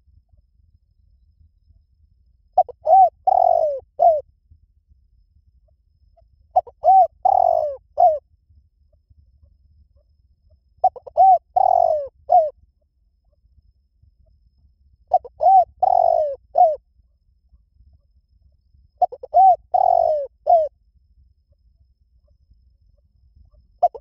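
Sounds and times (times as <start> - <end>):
dove cooing: 2.6 - 4.2, 6.5 - 8.2, 10.8 - 12.6, 15.1 - 16.8, 19.0 - 20.7, 23.5 - 24.0.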